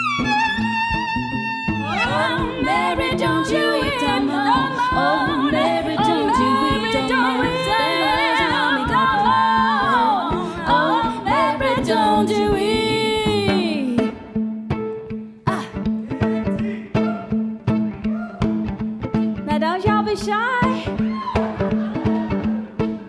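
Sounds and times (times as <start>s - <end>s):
layered vocal harmonies: 1.8s - 14.0s
woman singing wordless melody: 2.0s - 14.2s, 19.4s - 20.9s.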